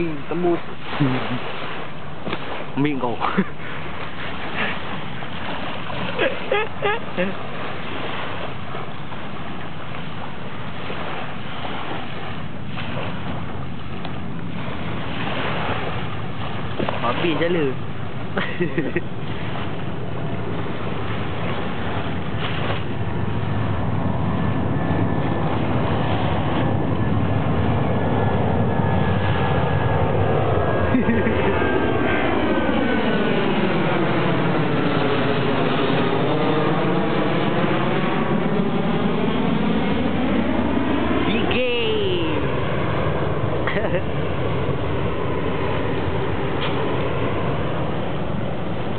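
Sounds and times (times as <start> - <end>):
rushing water: 0.0 - 48.9
rushing wind: 0.0 - 48.9
steady engine drone: 0.0 - 48.9.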